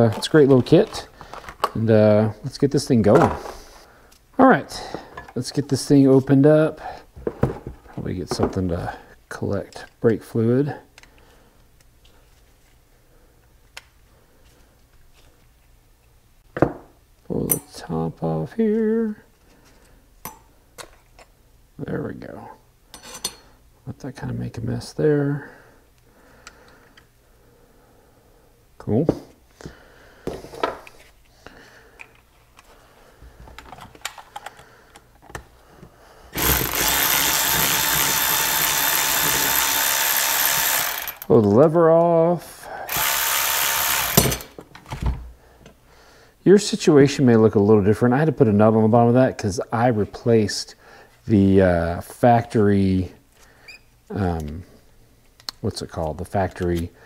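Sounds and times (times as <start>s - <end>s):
cordless electric ratchet whining: 36.4s - 41.3s, 42.9s - 44.5s.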